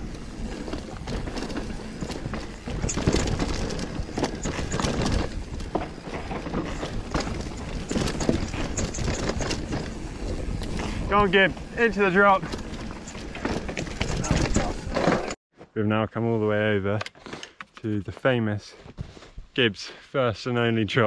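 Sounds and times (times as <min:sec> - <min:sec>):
bike knocks and rattles: 0:00.0 - 0:15.4
tyres rushing on dirt: 0:00.0 - 0:15.4.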